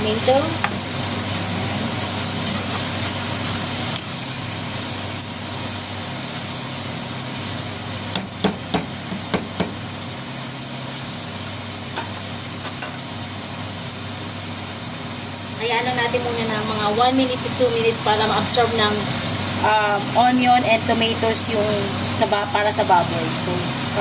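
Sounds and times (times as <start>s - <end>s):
meat sizzling in a pan: 0.0s - 24.0s
spatula knocking on pan: 8.1s - 9.8s.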